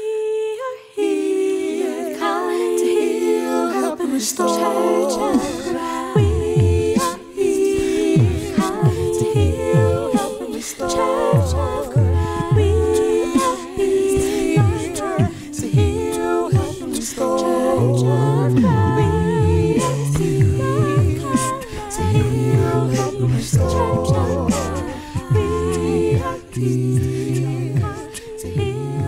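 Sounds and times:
vocal group singing in harmony: 0:00.0 - 0:29.0.

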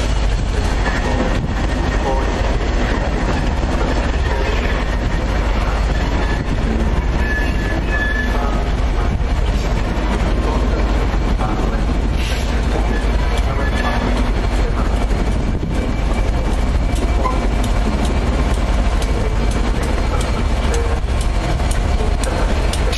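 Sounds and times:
train wheels rumbling on rails: 0:00.0 - 0:22.9
thin wheel squeal: 0:07.1 - 0:08.4.

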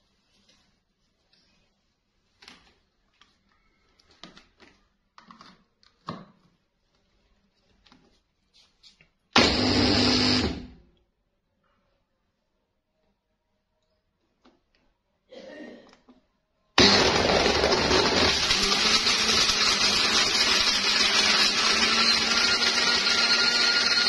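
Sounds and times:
blender motor burst: 0:09.4 - 0:10.8, 0:16.8 - 0:24.0.

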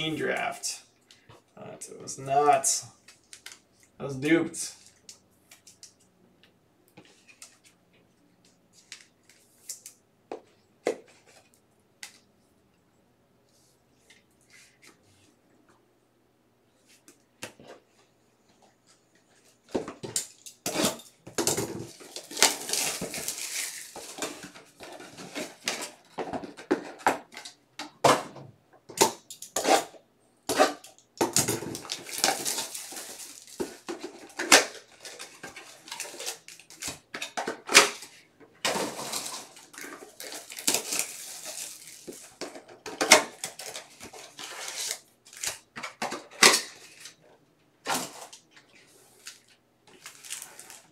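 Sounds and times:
plastic wrap crinkling: 0:21.8 - 0:26.1, 0:31.7 - 0:36.9, 0:38.7 - 0:42.4, 0:49.1 - 0:50.9.

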